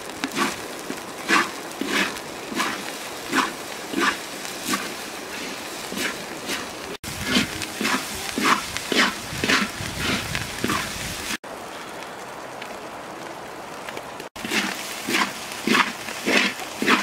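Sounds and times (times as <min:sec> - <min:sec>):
sizzling hiss: 0:00.0 - 0:17.0
spatula scraping a wok: 0:00.2 - 0:00.6, 0:01.2 - 0:11.4, 0:14.4 - 0:17.0.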